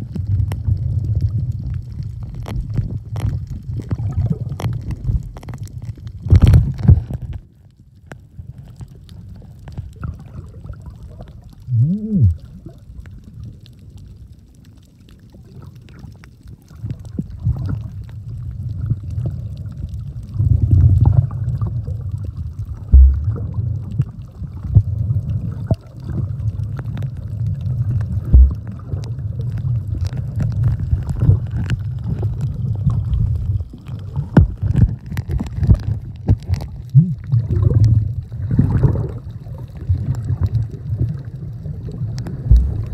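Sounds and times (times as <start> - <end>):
underwater rumble and gurgling: 0.0 - 42.9
underwater clicks and knocks: 0.1 - 7.5, 22.8 - 24.0, 24.6 - 42.9.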